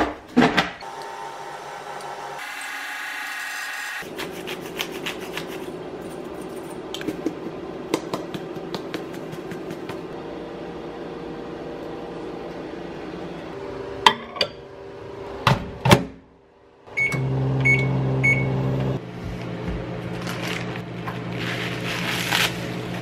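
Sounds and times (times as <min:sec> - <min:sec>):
microwave oven humming: 0:00.8 - 0:04.0, 0:10.0 - 0:23.0.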